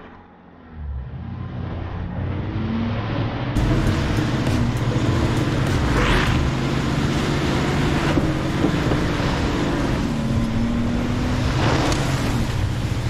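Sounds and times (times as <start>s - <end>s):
truck engine running: 3.6s - 10.7s.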